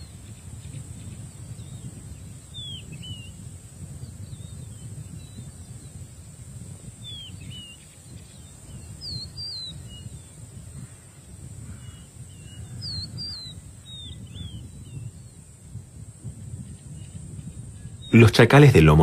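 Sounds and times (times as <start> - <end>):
bird whistled chirps: 2.5 - 3.4, 7.0 - 10.2, 12.4 - 15.1
low background noise: 18.1 - 19.0.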